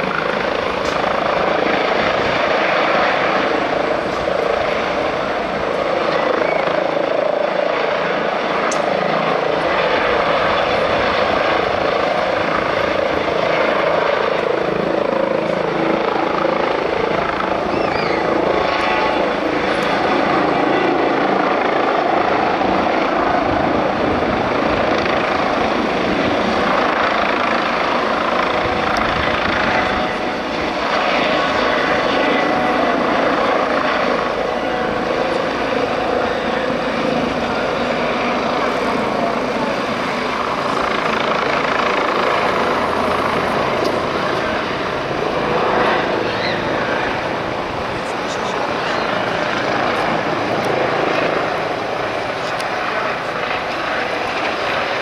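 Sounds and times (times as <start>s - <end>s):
helicopter rotor thrum: 0.0s - 55.0s
turbine whine: 0.0s - 55.0s.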